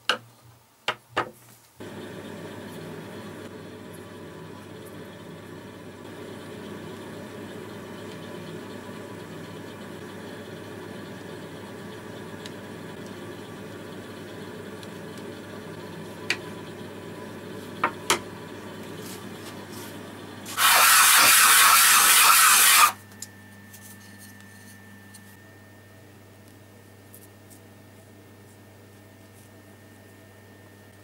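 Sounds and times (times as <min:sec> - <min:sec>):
steady background hum: 0:01.6 - 0:31.0
loud even hiss: 0:20.5 - 0:23.0.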